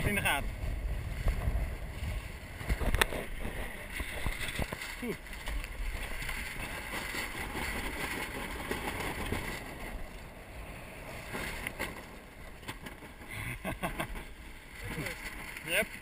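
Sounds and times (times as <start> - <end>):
wind noise on microphone: 0.0 - 16.0.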